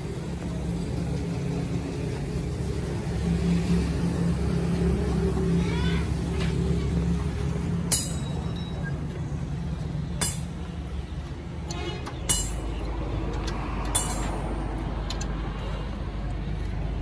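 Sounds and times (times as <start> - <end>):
low motor hum: 0.0 - 17.0
metal tools clinking on engine: 7.9 - 9.0, 11.6 - 15.3.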